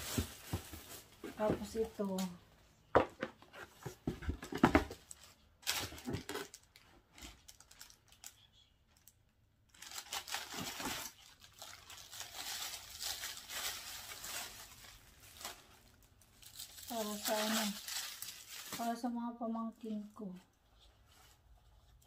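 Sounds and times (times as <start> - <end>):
plastic wrapping crinkling: 0.0 - 2.4, 4.9 - 19.2.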